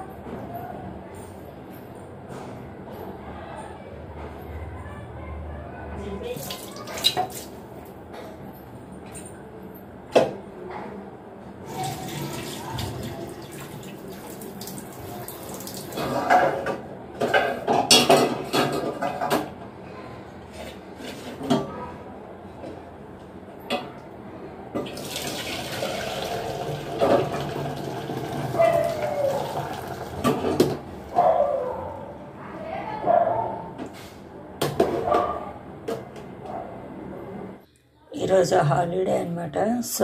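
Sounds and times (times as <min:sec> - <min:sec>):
water running: 0:06.3 - 0:07.6, 0:11.7 - 0:16.3, 0:24.9 - 0:30.7.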